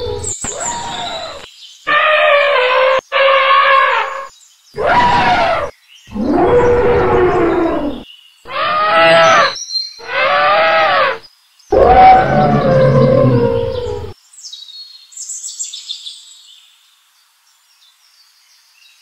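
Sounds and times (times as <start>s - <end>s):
elephant trumpeting: 0.0s - 14.2s.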